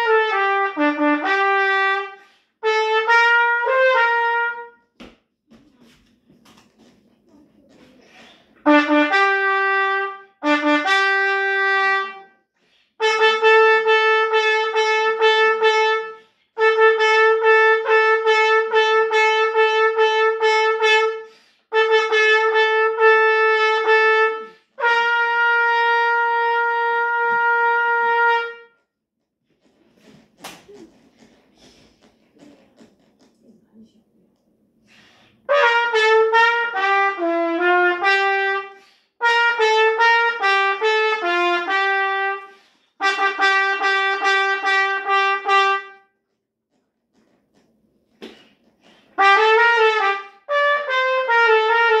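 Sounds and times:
solo trumpet: 0.0s - 4.9s, 8.6s - 12.4s, 13.0s - 28.8s, 35.5s - 46.2s, 49.2s - 52.0s
player breathing: 34.8s - 35.5s.

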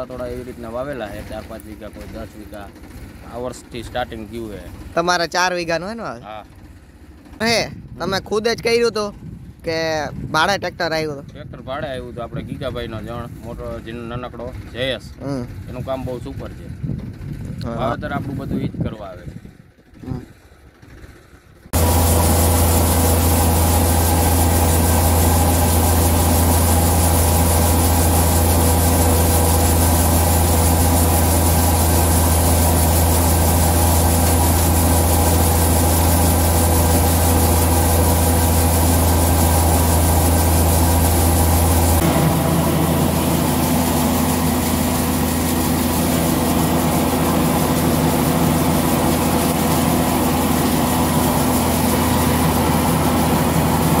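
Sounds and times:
thresher machine droning: 0.0s - 7.7s, 19.9s - 54.0s.

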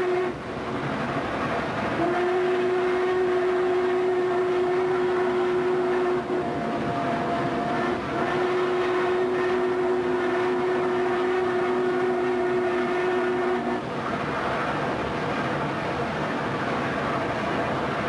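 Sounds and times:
steam locomotive whistle blasts: 0.0s - 0.4s, 2.0s - 13.8s
moving train running noise: 0.0s - 18.0s.

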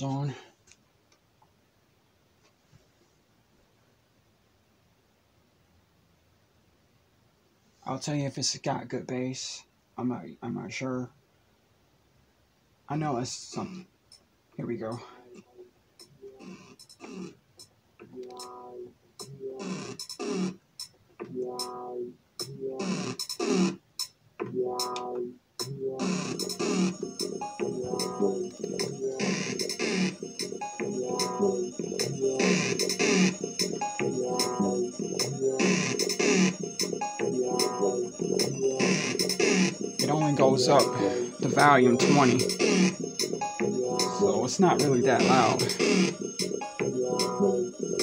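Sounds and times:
repeating pitched chord: 18.2s - 20.5s, 21.3s - 23.8s, 24.5s - 48.0s.

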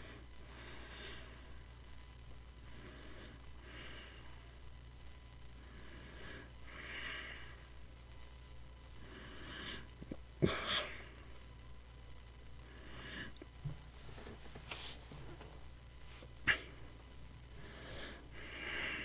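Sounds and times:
man breathing close to microphone: 0.0s - 1.8s, 2.6s - 4.5s, 5.6s - 7.7s, 9.0s - 11.1s, 12.6s - 15.4s, 17.5s - 19.0s
low steady hum: 0.0s - 19.0s.

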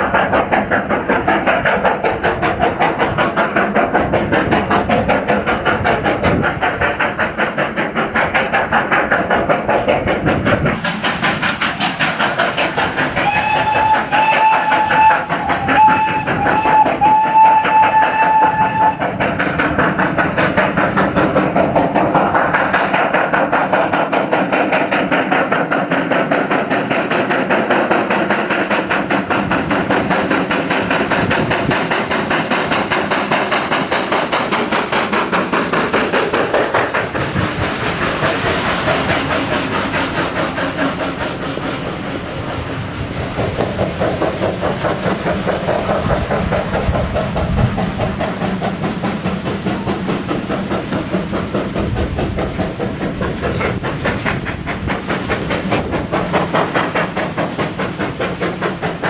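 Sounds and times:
steam locomotive exhaust beating: 0.0s - 59.0s
steam whistle blasts: 13.2s - 19.0s.

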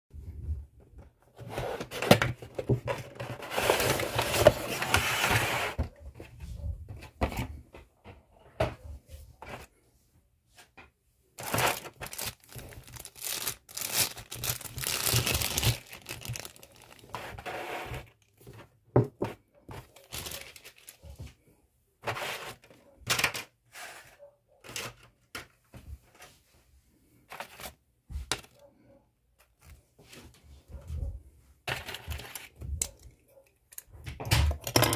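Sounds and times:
plastic bag crinkling and tearing: 11.4s - 17.2s, 20.0s - 21.0s.

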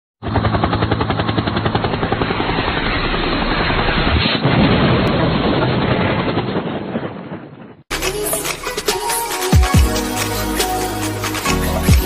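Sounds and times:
rapid rhythmic rotor-like chopping: 8.0s - 12.0s.

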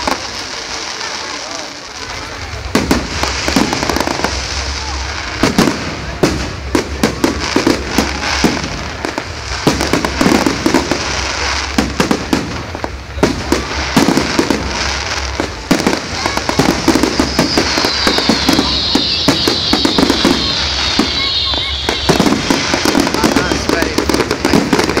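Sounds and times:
fireworks bangs and crackles: 0.0s - 25.0s
high falling whistle: 17.1s - 22.5s.

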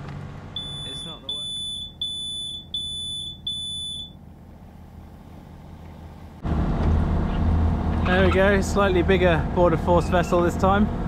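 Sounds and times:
electronic alarm beeping: 0.6s - 4.2s.

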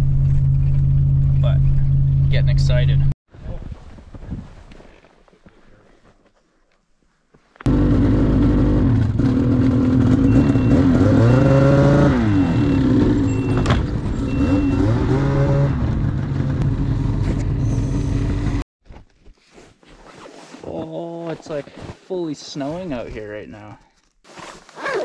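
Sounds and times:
snowmobile engine revving: 7.7s - 18.6s
reverse warning beeps: 10.2s - 15.1s.

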